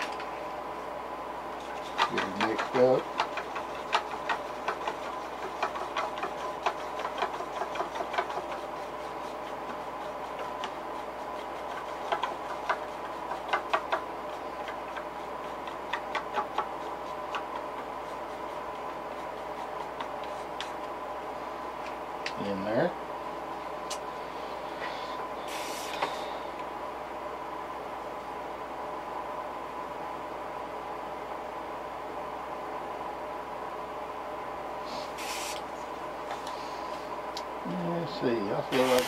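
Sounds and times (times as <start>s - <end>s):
steady hum: 0.0s - 39.0s.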